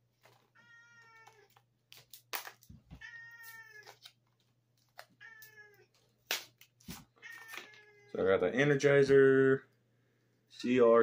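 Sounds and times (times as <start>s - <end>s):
cat meowing: 0.6s - 1.6s, 2.9s - 4.1s, 5.2s - 6.0s, 7.2s - 8.2s.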